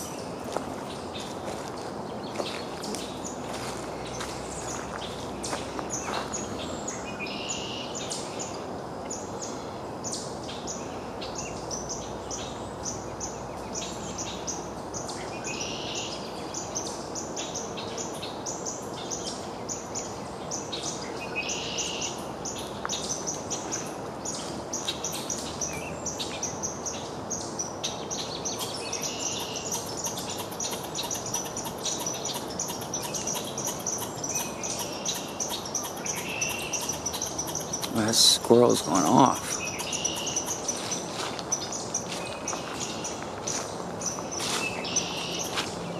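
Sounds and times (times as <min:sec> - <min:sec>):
squirrel alarm chips: 0:29.4 - 0:41.0.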